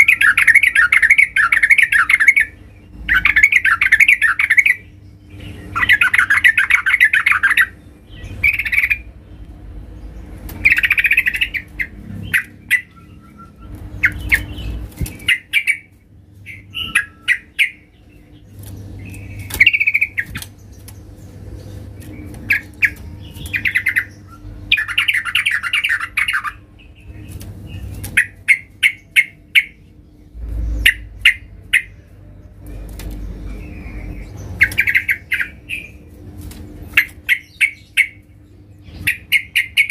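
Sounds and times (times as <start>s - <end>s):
bird harsh chattering calls: 0.0s - 9.2s, 10.1s - 32.2s, 33.1s - 36.1s, 36.8s - 39.9s.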